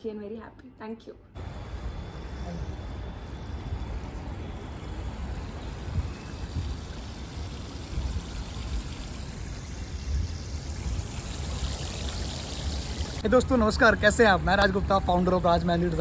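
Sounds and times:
water rushing down stone cascade: 4.6s - 13.2s.

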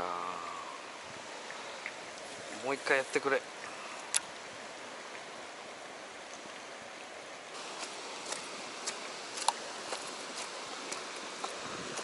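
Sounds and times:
flowing water hiss: 0.0s - 12.0s
footsteps on dry leaves: 7.6s - 12.0s.

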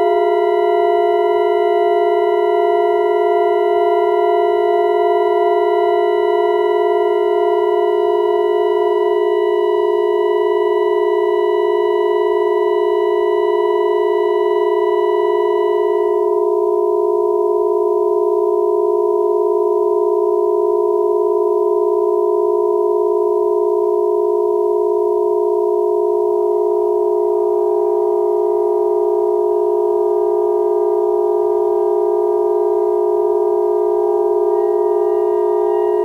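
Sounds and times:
faint higher tones: 27.6s - 36.0s
saxophone and electronic drone: 31.4s - 36.0s.

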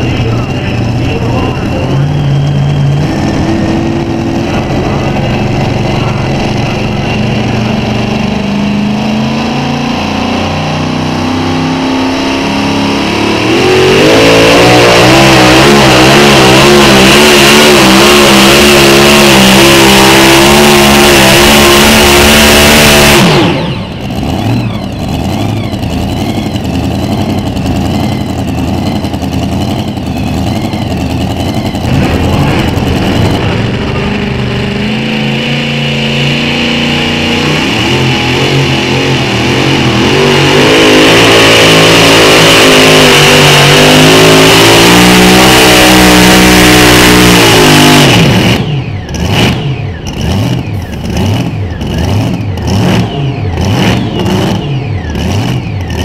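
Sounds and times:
truck engine idling: 0.0s - 13.5s, 23.2s - 41.2s, 48.2s - 56.0s
truck engine revving: 0.0s - 56.0s.

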